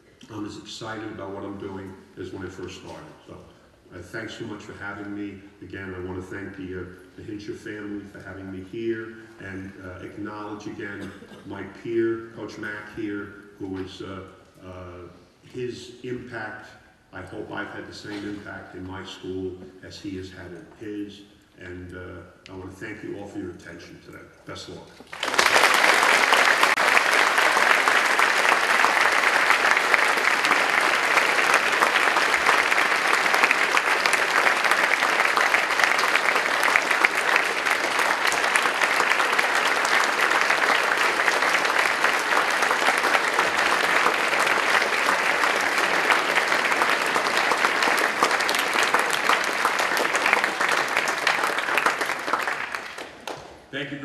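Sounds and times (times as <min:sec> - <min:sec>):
large audience applauding: 0:25.0 - 0:53.6.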